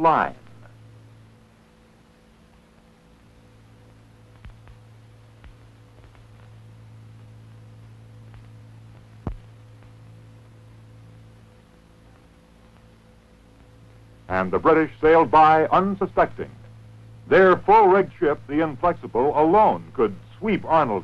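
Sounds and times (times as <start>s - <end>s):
recording hum and hiss: 0.0s - 21.0s
faint clicks and pop: 2.5s - 10.6s, 11.5s - 14.0s.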